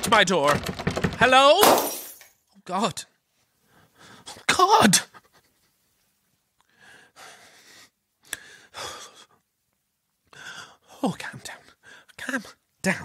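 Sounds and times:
man breathing heavily: 6.6s - 9.4s, 10.3s - 10.9s.

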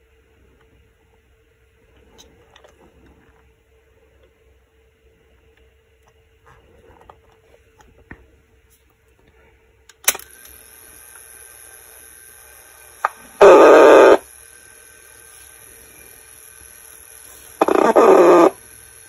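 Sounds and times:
faint speaker whine: 0.0s - 19.0s
tape hiss: 0.0s - 19.0s
tape recorder click: 9.9s - 10.6s
loud distorted recorded sound: 10.1s - 19.0s.

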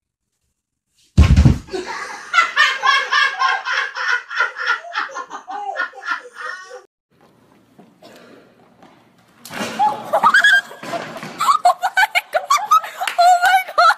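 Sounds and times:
person falling onto floor: 1.1s - 1.8s, 9.4s - 11.6s
person laughing hard: 1.7s - 6.9s, 9.8s - 13.9s.

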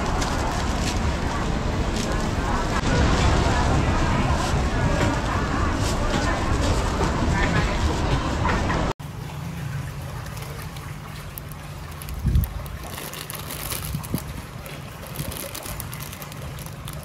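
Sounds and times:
plastic bag crinkling: 0.0s - 2.6s, 10.2s - 17.0s.

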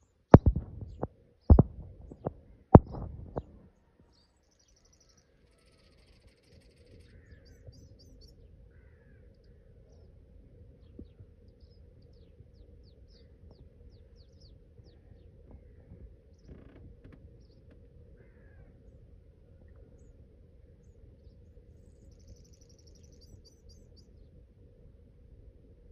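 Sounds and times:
steady low hum: 0.0s - 3.9s
bird chirps and trills: 0.4s - 10.1s, 21.3s - 24.1s.

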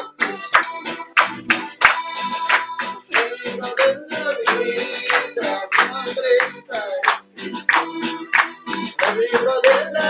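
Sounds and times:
hands clapping in rhythm: 0.0s - 10.0s
group of people singing: 1.8s - 7.0s, 7.8s - 10.0s.

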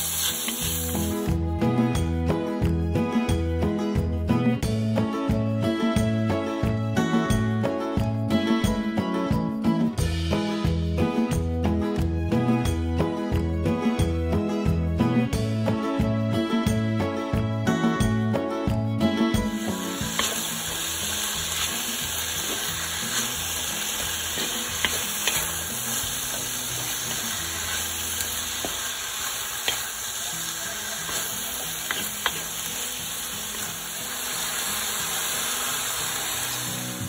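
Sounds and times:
food sizzling in a wok: 0.0s - 2.1s, 19.4s - 37.0s
spatula scraping a pan: 19.7s - 29.9s, 31.0s - 32.6s.

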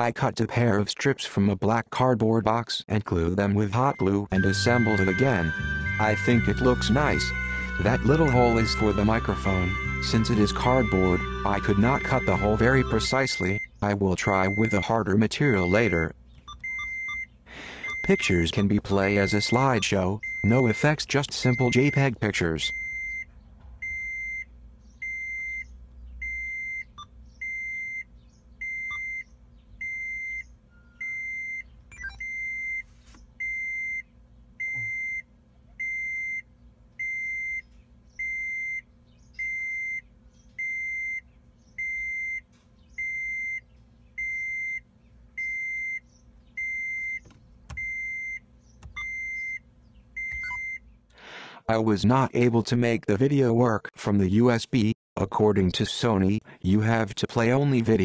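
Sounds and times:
electronic warning beeps: 3.8s - 34.0s, 34.6s - 40.0s, 40.6s - 42.4s, 43.0s - 43.6s, 44.2s - 44.8s, 45.4s - 49.6s, 50.2s - 50.8s.

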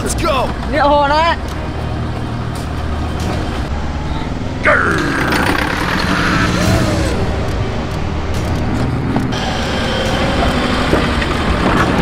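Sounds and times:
vehicle engine running: 0.0s - 12.0s
sound sliding down in pitch: 4.9s - 7.6s.

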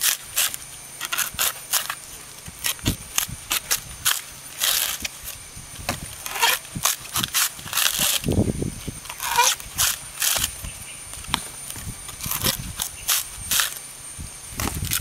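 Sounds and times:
coconut husk ripping and cracking: 0.0s - 8.4s, 9.0s - 13.9s.

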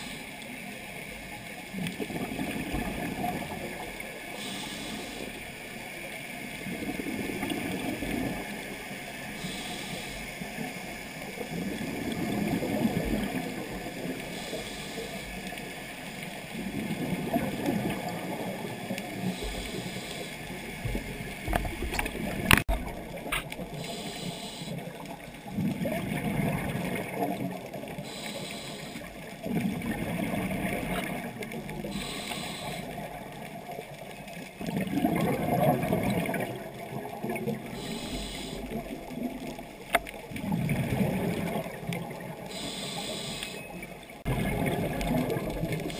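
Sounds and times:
regulator inhale hiss: 0.0s - 0.4s, 4.3s - 5.5s, 9.3s - 10.6s, 14.2s - 15.5s, 19.2s - 20.6s, 23.7s - 24.9s, 28.0s - 29.1s, 31.9s - 33.1s, 37.7s - 38.8s, 42.5s - 43.6s
gurgling exhaled bubbles: 1.6s - 15.5s, 16.4s - 42.8s, 43.6s - 45.9s.

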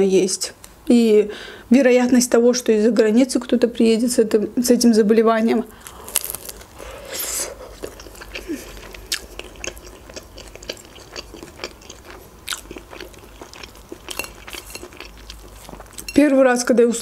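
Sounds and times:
biting into wrap: 5.8s - 15.8s
chewing with mouth clicks: 5.8s - 16.2s.

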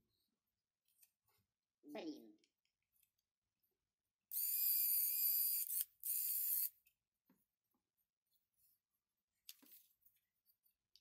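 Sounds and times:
electric screwdriver motor whining: 4.3s - 6.7s.

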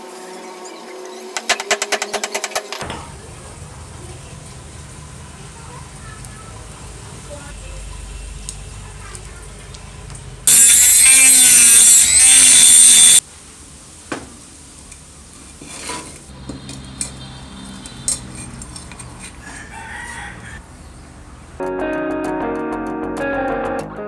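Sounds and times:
rooster crowing: 19.4s - 20.7s.

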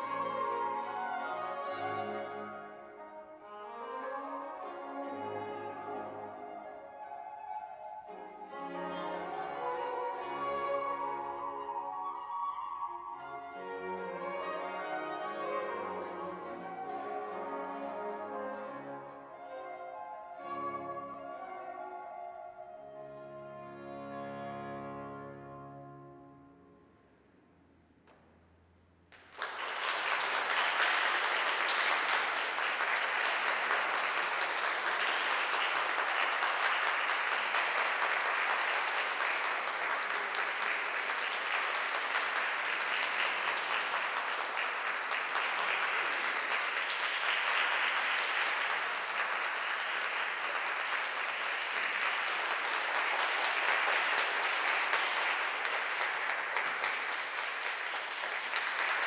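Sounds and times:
audience applause: 0.0s - 2.4s, 29.1s - 59.0s.

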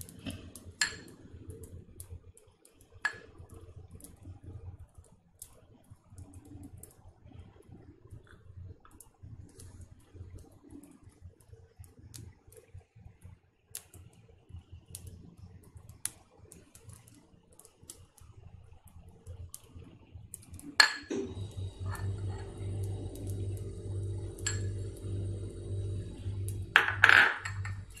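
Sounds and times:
popping candy crackling: 13.8s - 28.0s
steady low hum: 20.5s - 28.0s.

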